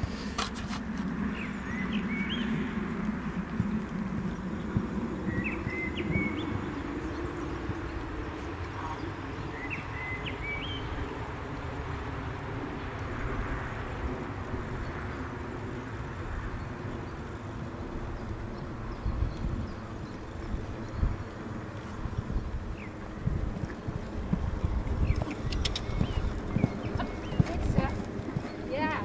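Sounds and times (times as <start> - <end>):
low outdoor rumble: 0.0 - 29.0
bird chirping: 4.4 - 11.0, 24.6 - 29.0.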